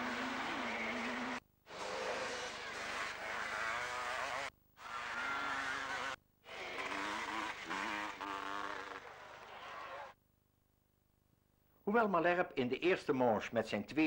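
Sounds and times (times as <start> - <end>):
motocross bikes revving: 0.0 - 10.1.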